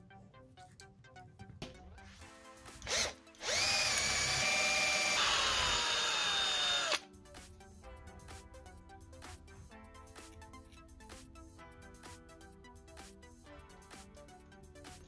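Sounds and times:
cordless drill drilling into steel: 0:02.8 - 0:07.0.

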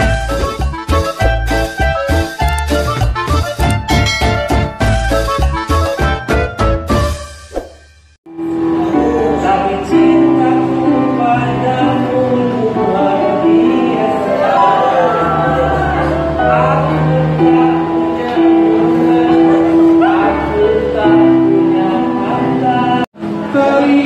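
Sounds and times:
instrumental backing: 0:00.0 - 0:23.6
song with singing: 0:08.7 - 0:24.0.

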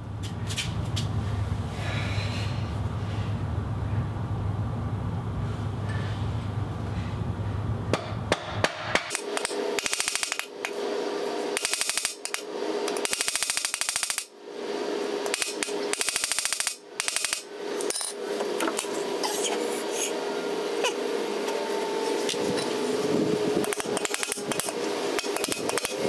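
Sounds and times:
hammer striking nails on iron: 0:07.9 - 0:10.4.

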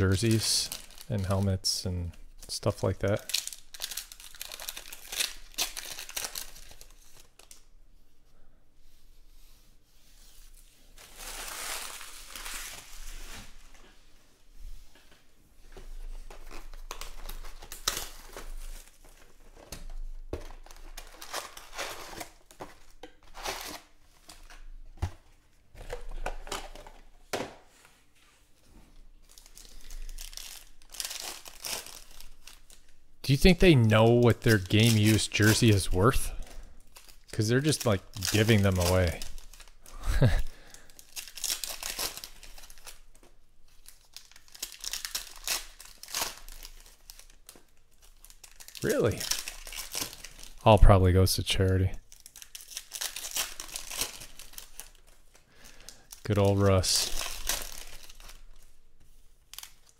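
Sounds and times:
foil packs tearing and crinkling: 0:00.0 - 0:01.8, 0:02.4 - 0:07.6, 0:11.0 - 0:13.6, 0:20.5 - 0:24.6, 0:29.3 - 0:36.2, 0:36.8 - 0:43.1, 0:43.8 - 0:50.6, 0:51.6 - 0:58.7.

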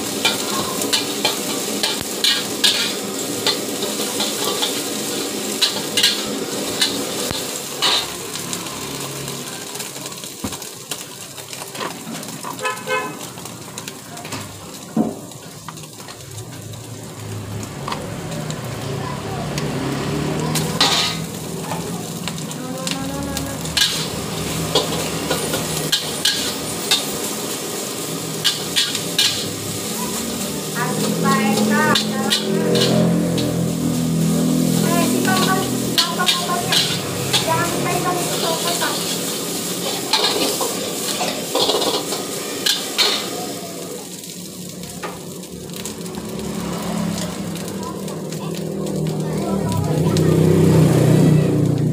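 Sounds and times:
frying hiss: 0:00.0 - 0:51.9
rice sizzling in a wok: 0:00.0 - 0:51.9
metal spatula scraping and clanking: 0:00.2 - 0:04.9, 0:05.5 - 0:08.2, 0:20.6 - 0:21.3, 0:23.7 - 0:27.3, 0:28.4 - 0:30.2, 0:31.6 - 0:33.6, 0:35.4 - 0:37.5, 0:39.8 - 0:43.4.

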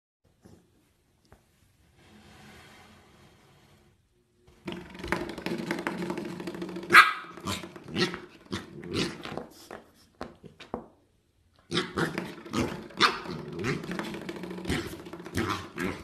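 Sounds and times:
puppy growling: 0:06.1 - 0:09.5, 0:11.7 - 0:16.0
puppy barking and yapping: 0:06.9 - 0:08.8, 0:12.9 - 0:13.8.

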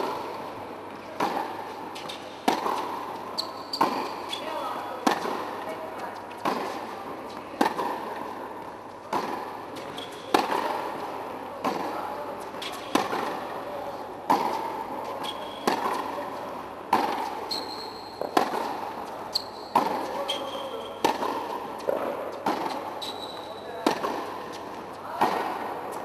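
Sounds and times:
tennis racket hits: 0:00.0 - 0:08.3, 0:09.1 - 0:23.2, 0:23.8 - 0:26.0
shoe squeaks on court: 0:03.3 - 0:04.8, 0:15.1 - 0:15.7, 0:17.4 - 0:18.4, 0:19.3 - 0:21.0, 0:22.7 - 0:23.8.

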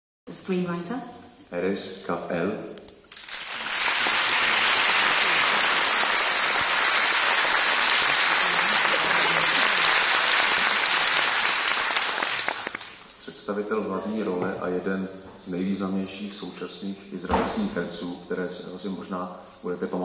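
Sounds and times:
audience applauding: 0:03.1 - 0:13.1.

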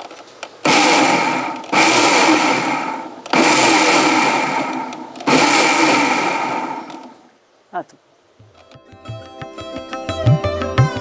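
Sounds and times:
mixer grinder running: 0:00.7 - 0:07.2.

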